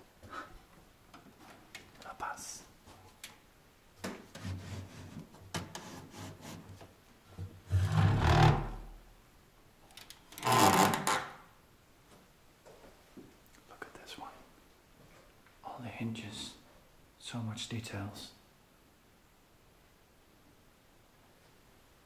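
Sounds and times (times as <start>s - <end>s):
cupboard doors scraping: 7.6s - 8.9s.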